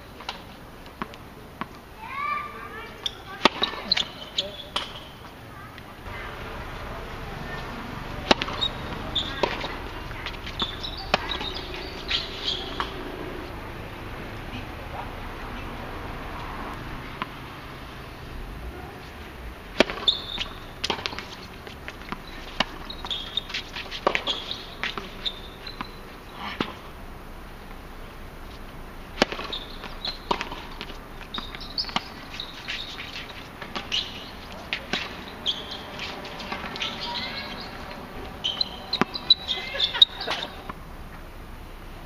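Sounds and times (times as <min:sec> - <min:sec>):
tennis ball hitting rackets: 0:00.2 - 0:13.8, 0:16.4 - 0:18.1, 0:19.7 - 0:27.0, 0:28.5 - 0:40.8
tennis shoes squeaking on court: 0:02.3 - 0:05.5, 0:06.1 - 0:13.6, 0:19.8 - 0:26.9, 0:28.5 - 0:40.8.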